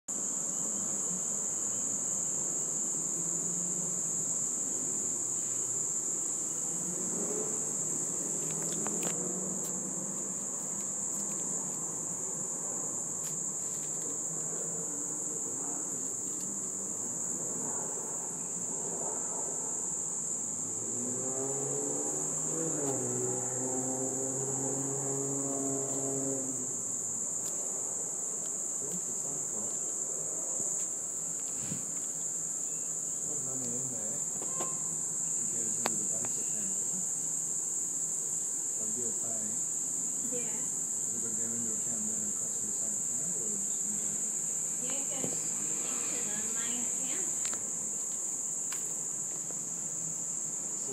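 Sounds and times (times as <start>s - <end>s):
high-pitched insect chorus: 0.1s - 50.9s.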